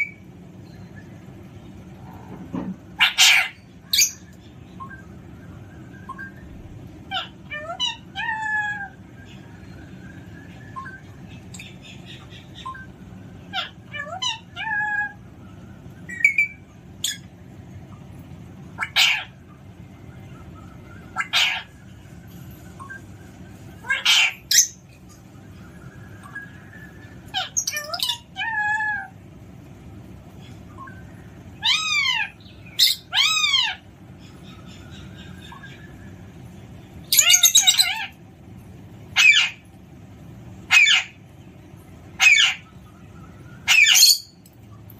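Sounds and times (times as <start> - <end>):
parakeet calling: 2.8 - 22.0, 22.8 - 29.2, 30.3 - 39.8, 40.6 - 44.4
parrot squawking harshly: 3.0 - 4.2, 18.8 - 19.4, 21.2 - 21.7, 23.8 - 24.8, 31.6 - 33.8, 37.1 - 38.2, 39.2 - 39.6, 40.7 - 41.2, 42.2 - 42.6, 43.7 - 44.3
parrot chirping: 3.0 - 15.2, 16.0 - 21.9, 22.8 - 29.1, 30.5 - 38.2, 39.1 - 39.7, 40.6 - 41.3, 41.9 - 44.4.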